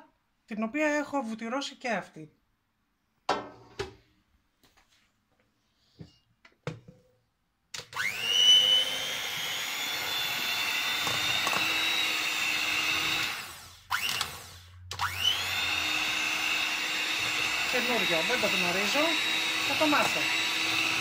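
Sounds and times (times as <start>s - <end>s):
electric hand mixer whining: 7.8s - 21.0s.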